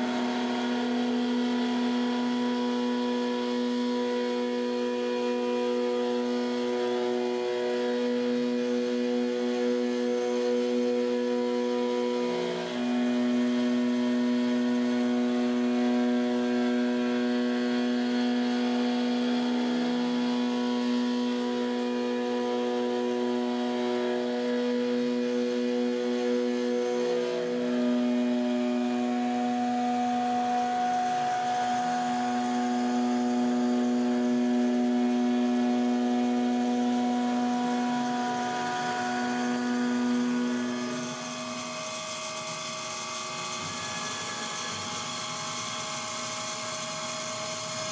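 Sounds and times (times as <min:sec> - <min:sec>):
high machine whine: 0:00.0 - 0:47.9
milling spindle cutting metal: 0:23.0 - 0:47.9.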